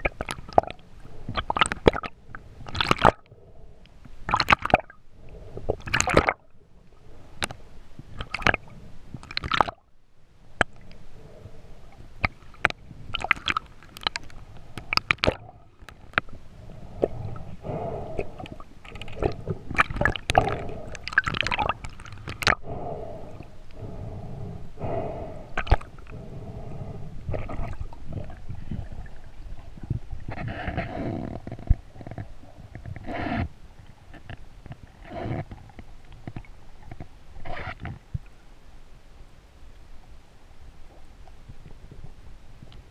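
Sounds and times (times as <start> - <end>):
low steady hum: 0.0 - 42.9
water rushing and swishing: 10.5 - 38.0.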